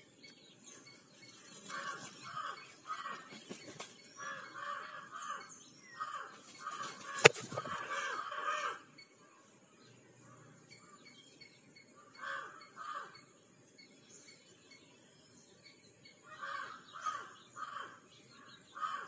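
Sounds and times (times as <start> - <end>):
crow cawing: 1.7 - 3.3, 4.2 - 8.9, 12.0 - 13.2, 16.3 - 19.0.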